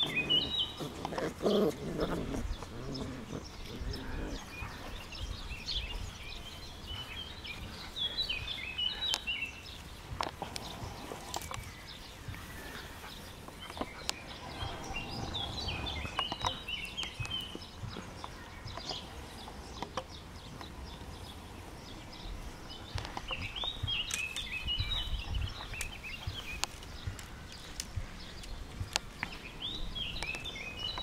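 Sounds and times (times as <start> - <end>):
low outdoor rumble: 0.0 - 24.1
small rustles: 0.0 - 31.0
songbird chirping: 0.0 - 31.0.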